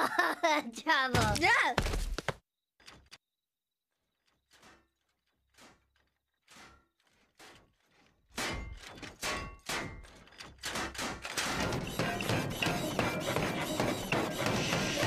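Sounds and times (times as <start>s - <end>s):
thuds and knocks: 1.1s - 3.2s, 4.6s - 15.0s
heavy footsteps: 1.2s - 2.4s, 11.6s - 15.0s.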